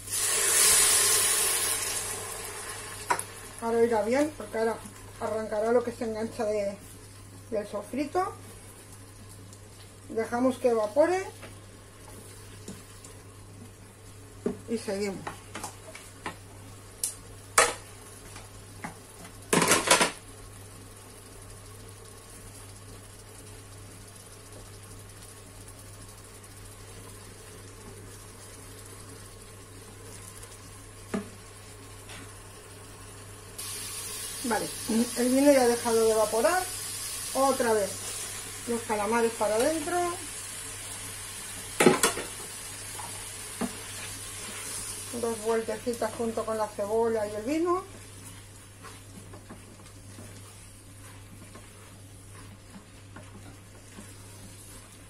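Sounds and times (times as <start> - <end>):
onions sizzling in a pot: 0.0 - 55.0
spatula stirring: 43.6 - 55.0.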